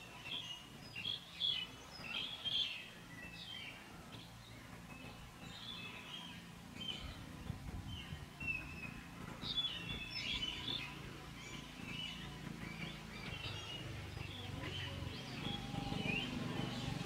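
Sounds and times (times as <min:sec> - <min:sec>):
birds chirping and calling: 0:00.0 - 0:17.0
low background rumble: 0:00.0 - 0:17.0.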